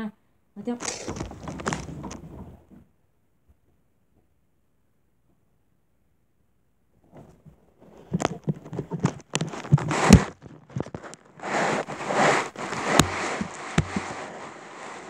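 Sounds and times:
microphone handling noise: 0.7s - 2.8s, 7.1s - 15.0s
rustling: 0.7s - 2.9s, 7.0s - 15.0s.

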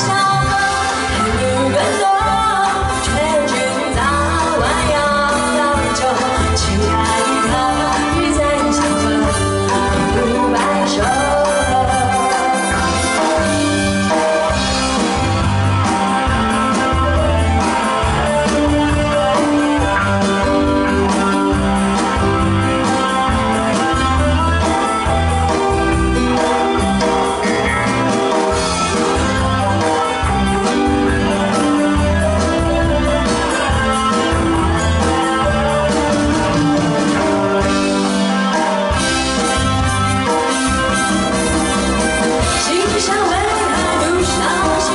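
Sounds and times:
person singing: 0.0s - 14.9s, 42.4s - 44.9s
drum kit: 0.0s - 44.9s
electric guitar: 0.0s - 44.9s.

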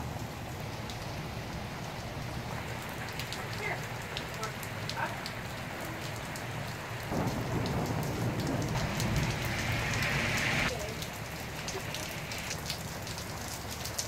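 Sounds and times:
rain falling: 0.0s - 14.0s
raindrops ticking on microphone: 0.0s - 14.0s
rushing noise with low rumble: 7.0s - 13.2s.

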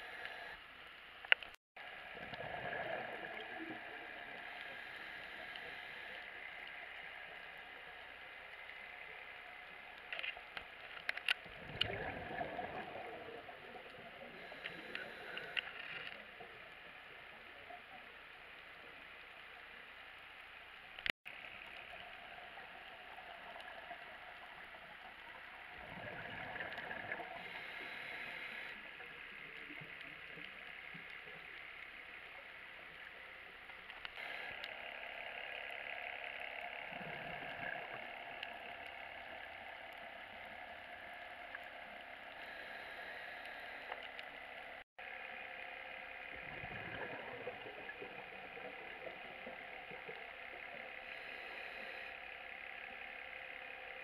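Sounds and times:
scuba regulator bubbles gurgling: 1.8s - 9.8s, 11.4s - 15.6s, 21.5s - 31.7s, 46.0s - 52.2s
steady hiss: 2.7s - 11.0s, 27.4s - 36.8s, 38.1s - 46.0s.

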